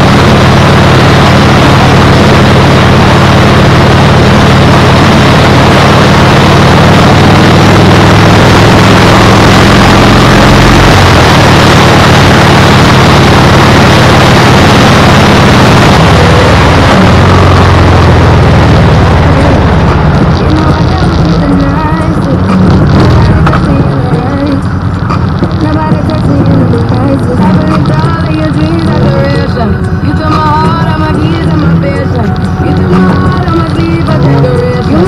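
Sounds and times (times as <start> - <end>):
low engine drone: 0.0 - 35.0.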